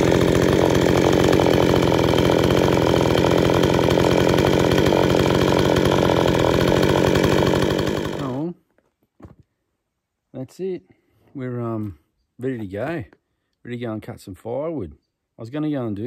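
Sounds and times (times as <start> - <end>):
chainsaw idling: 0.0 - 8.6.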